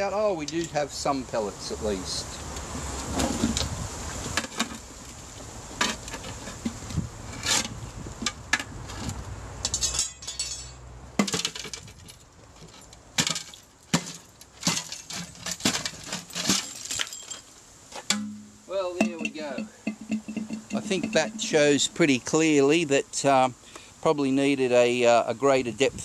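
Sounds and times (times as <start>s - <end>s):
metal container knocking: 18.1s - 21.6s.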